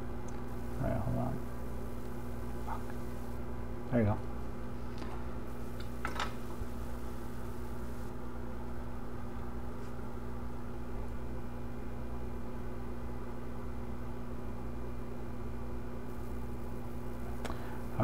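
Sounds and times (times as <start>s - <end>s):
workbench equipment humming: 0.0s - 11.3s, 15.9s - 18.0s.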